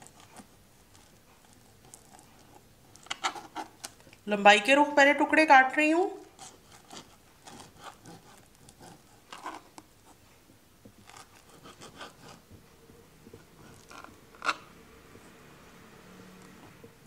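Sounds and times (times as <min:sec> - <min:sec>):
knife cutting on cutting board: 0:06.3 - 0:09.8, 0:11.0 - 0:12.5, 0:13.3 - 0:14.7.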